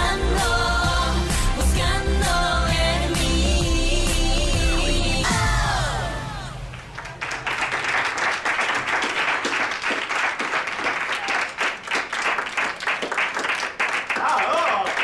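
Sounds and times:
people applauding: 0:06.7 - 0:15.0.

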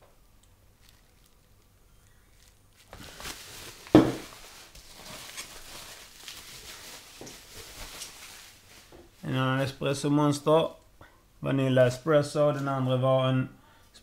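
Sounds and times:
bubble wrap rustling and crinkling: 0:00.7 - 0:09.7
hard object bumping a box: 0:03.9 - 0:04.3.

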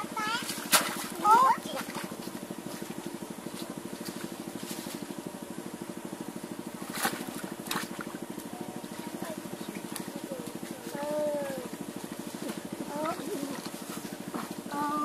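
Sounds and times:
small engine puttering: 0:00.0 - 0:15.0
sharp knocks or splashes: 0:00.4 - 0:02.2, 0:06.8 - 0:08.2.

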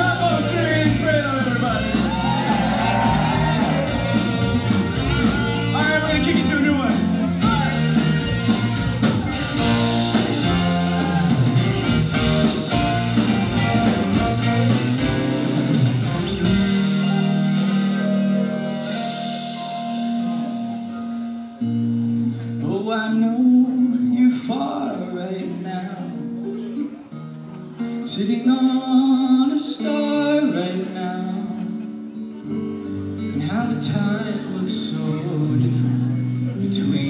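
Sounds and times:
held keyboard chords: 0:00.0 - 0:24.0
live rock band: 0:00.0 - 0:37.0
person singing: 0:33.2 - 0:37.0.

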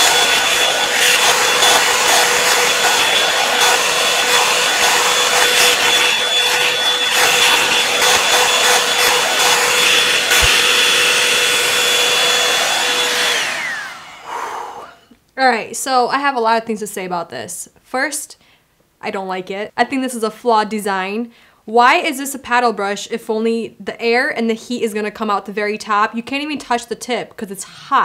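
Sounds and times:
hair dryer whine and air rush: 0:00.0 - 0:15.1.

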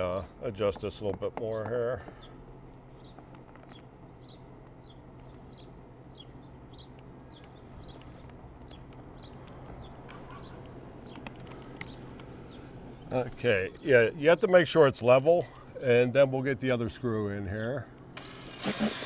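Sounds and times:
bird chirping: 0:01.4 - 0:16.3.

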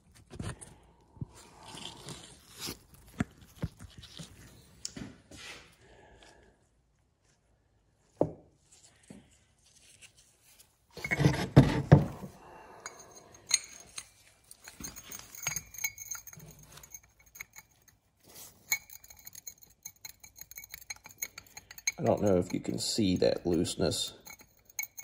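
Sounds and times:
metallic clinks with ringing: 0:12.8 - 0:25.0.

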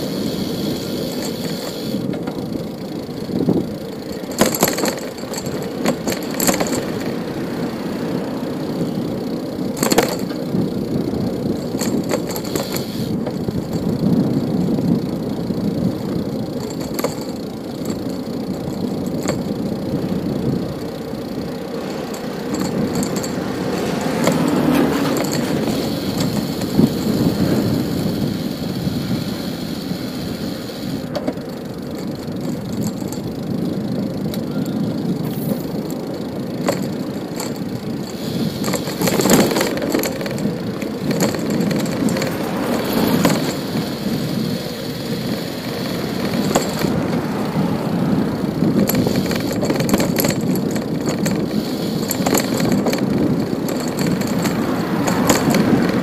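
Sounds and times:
bicycle rolling rumble: 0:00.0 - 0:56.0
cars passing: 0:05.2 - 0:13.6, 0:19.6 - 0:31.8, 0:40.6 - 0:49.8, 0:51.5 - 0:56.0.

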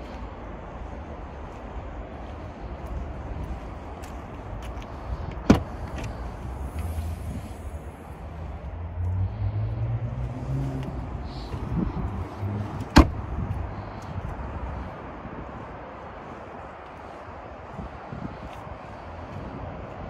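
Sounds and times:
car boot latch clunk: 0:05.3 - 0:06.1, 0:12.9 - 0:13.2
car boot lid slamming: 0:05.4 - 0:05.7, 0:12.9 - 0:13.2.

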